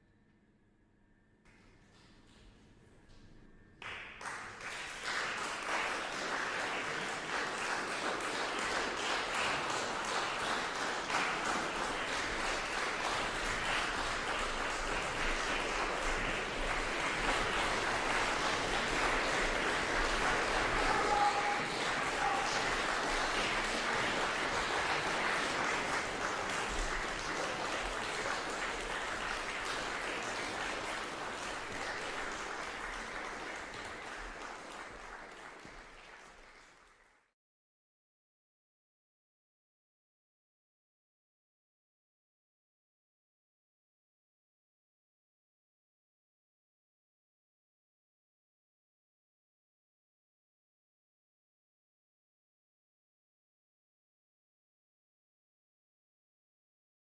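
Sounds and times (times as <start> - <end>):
audience applauding: 3.8 - 37.3.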